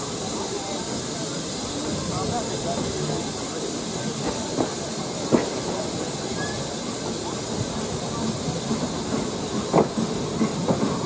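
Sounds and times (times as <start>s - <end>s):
steam train running noise and hiss: 0.0s - 11.0s
train wheels knocking: 7.0s - 11.0s.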